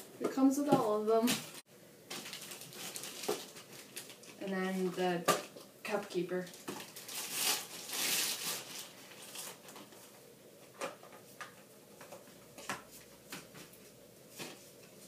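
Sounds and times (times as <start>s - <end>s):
plastic wrapping crinkling: 1.2s - 5.7s, 6.4s - 10.2s.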